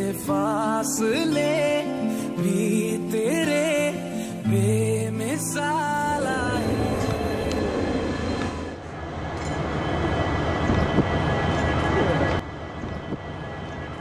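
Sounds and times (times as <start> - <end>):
road noise: 5.9 - 14.0.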